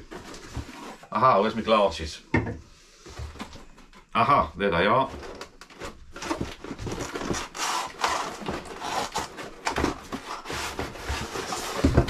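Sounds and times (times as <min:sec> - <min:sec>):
cardboard rustling and scraping: 0:00.0 - 0:01.9, 0:02.9 - 0:12.0.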